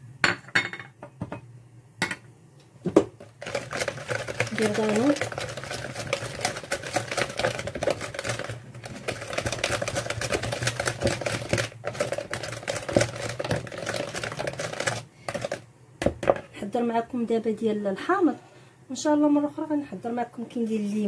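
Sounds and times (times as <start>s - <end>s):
whisk clicking against plastic bowl: 3.4s - 15.6s.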